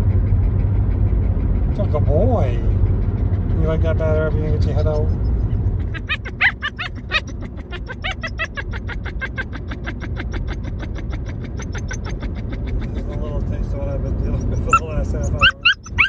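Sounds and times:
car road rumble: 0.0s - 9.1s
puppy whining and yipping: 4.5s - 12.9s, 14.0s - 16.0s.

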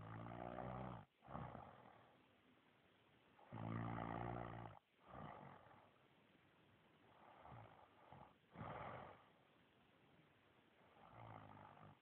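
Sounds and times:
man snoring: 0.0s - 2.0s, 3.5s - 5.8s, 7.2s - 9.2s, 10.9s - 12.0s
soft breath: 7.0s - 12.0s.

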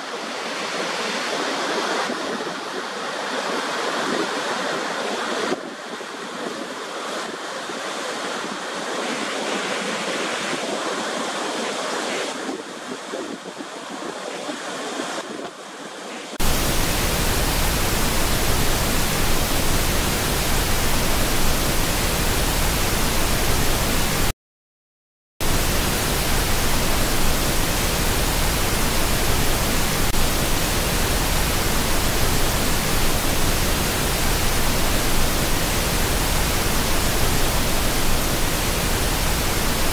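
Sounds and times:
even hiss: 16.4s - 24.3s, 25.4s - 39.9s
waterfall rushing water: 16.4s - 24.3s, 25.4s - 39.9s.

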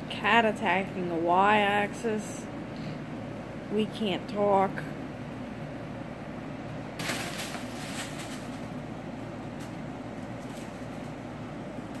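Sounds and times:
air conditioner hum: 0.0s - 12.0s.

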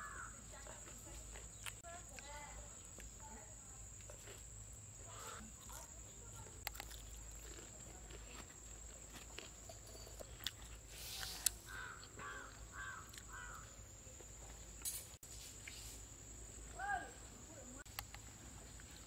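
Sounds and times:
crow cawing: 0.0s - 0.4s, 5.1s - 5.5s, 11.7s - 13.8s.

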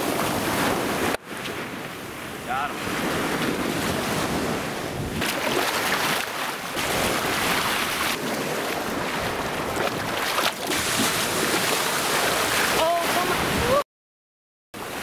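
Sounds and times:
small waves washing: 0.0s - 13.8s
water splashing: 5.2s - 13.8s.

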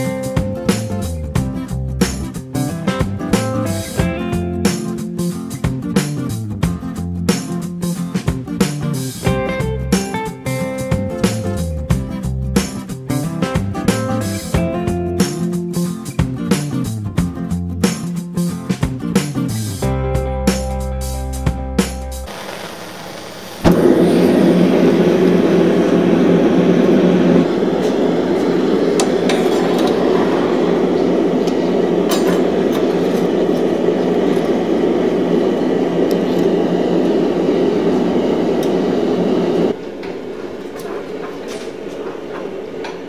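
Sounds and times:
gas burner rushing: 22.3s - 43.0s.

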